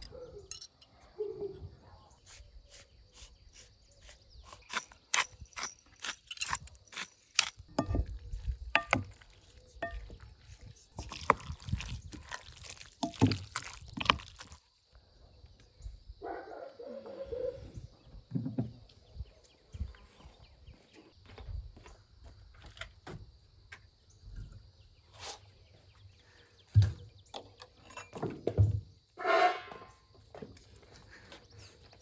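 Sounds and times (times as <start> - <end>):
scraping and squelching vegetables: 3.6 - 14.7.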